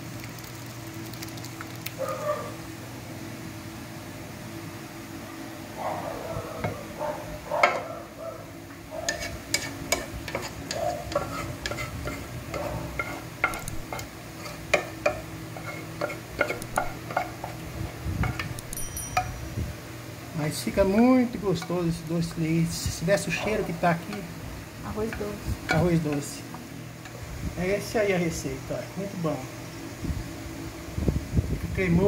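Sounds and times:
steady low hum: 0:00.0 - 0:32.0
spoon scraping and knocking pot: 0:09.1 - 0:17.6.

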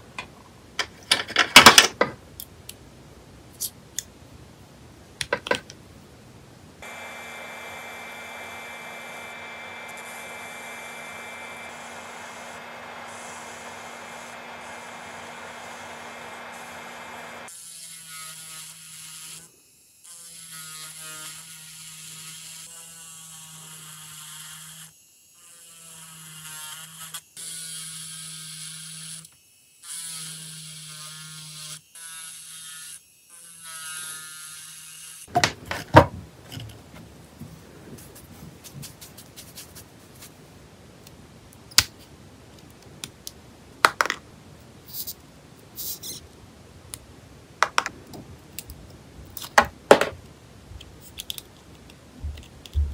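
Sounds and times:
electric nail drill humming: 0:06.8 - 0:35.2.

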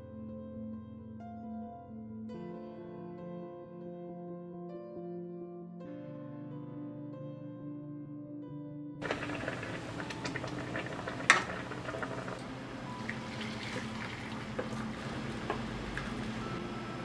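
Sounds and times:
liquid pouring into a mesh sieve: 0:09.0 - 0:16.5.

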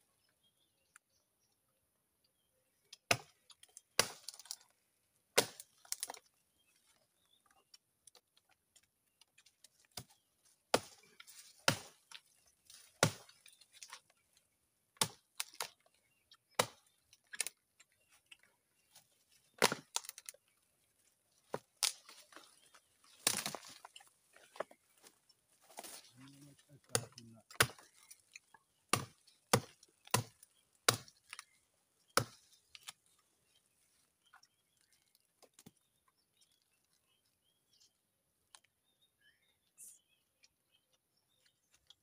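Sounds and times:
axe chopping into wood: 0:03.1 - 0:03.4, 0:05.4 - 0:06.2, 0:10.7 - 0:11.0, 0:11.6 - 0:12.0, 0:13.0 - 0:13.3, 0:15.0 - 0:15.7, 0:16.5 - 0:16.9, 0:19.6 - 0:20.2, 0:23.2 - 0:23.7, 0:26.9 - 0:27.9, 0:28.9 - 0:31.4, 0:32.2 - 0:32.9.

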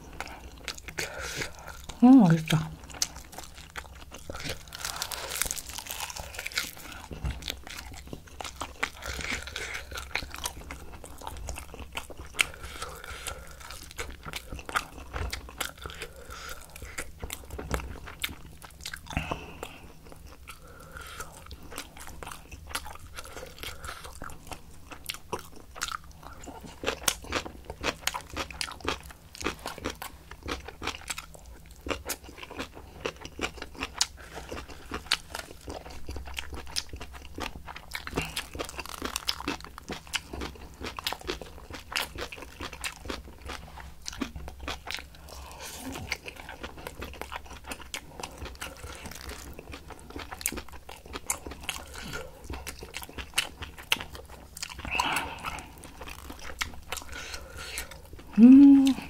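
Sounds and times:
person chewing crunchy food: 0:00.0 - 0:59.0.

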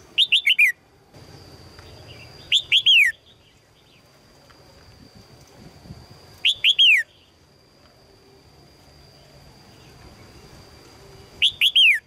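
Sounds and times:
bird whistled calls: 0:00.2 - 0:00.8, 0:02.0 - 0:03.6, 0:06.4 - 0:07.3, 0:11.2 - 0:12.0.

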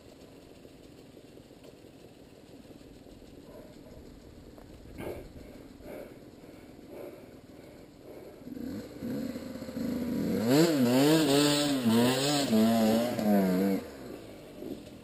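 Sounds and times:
dirt bike engine revving: 0:06.8 - 0:15.0.

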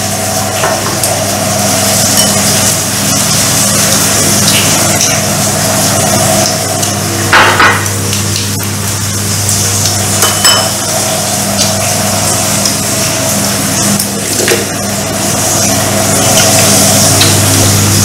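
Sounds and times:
electric fans humming: 0:00.0 - 0:18.0
utensils clinking on porcelain: 0:10.2 - 0:10.8.

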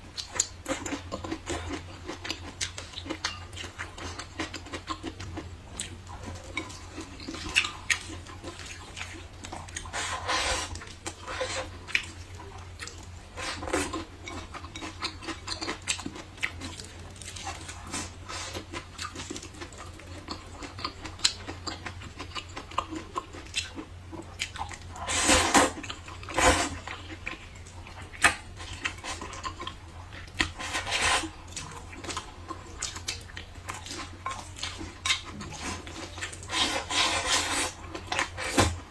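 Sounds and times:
wet chewing and slurping noodles: 0:00.0 - 0:38.9.

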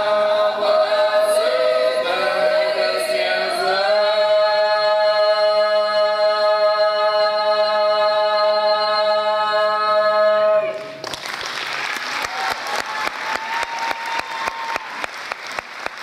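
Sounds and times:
choir singing a cappella: 0:00.0 - 0:11.0
audience applause: 0:11.0 - 0:16.0.

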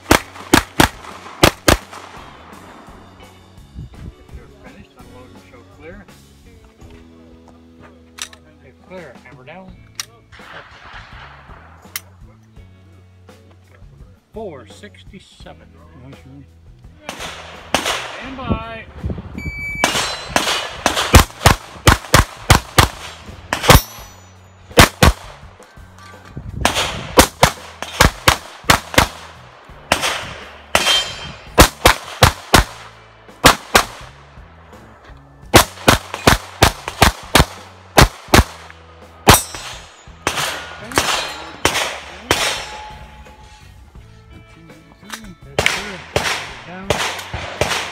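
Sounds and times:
pistol shots: 0:00.0 - 0:02.6, 0:17.0 - 0:18.4, 0:19.8 - 0:25.4, 0:26.6 - 0:34.2, 0:35.5 - 0:42.9, 0:45.6 - 0:47.9
shot timer beep: 0:19.4 - 0:19.9.

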